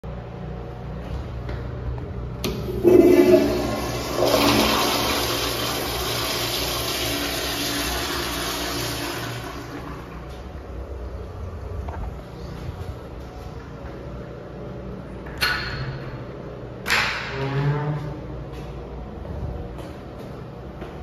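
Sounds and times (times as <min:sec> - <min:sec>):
toilet flushing rush of water: 0:02.7 - 0:10.6.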